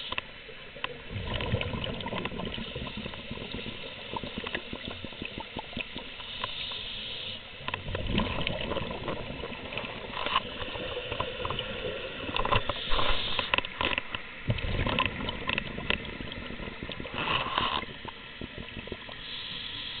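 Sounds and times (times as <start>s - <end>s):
underwater bubbles gurgling: 0.0s - 20.0s
small clicks and knocks: 12.3s - 16.1s.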